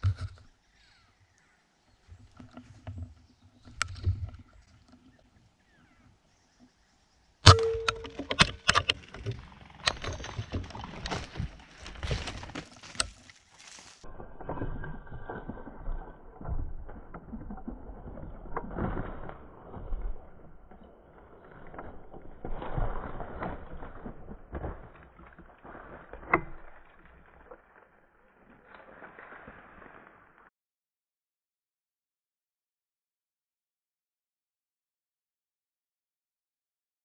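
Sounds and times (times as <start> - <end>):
footsteps crunching through brush: 9.9 - 14.2, 21.5 - 30.5.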